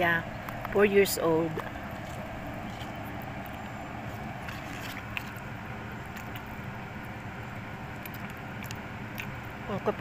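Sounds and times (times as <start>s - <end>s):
car road and engine noise: 0.0s - 10.0s.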